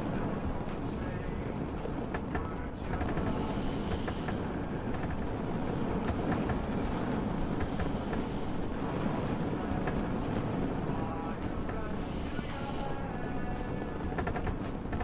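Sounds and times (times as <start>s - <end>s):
boat engine rumbling: 0.0s - 15.0s
faint rain ticks: 0.0s - 15.0s.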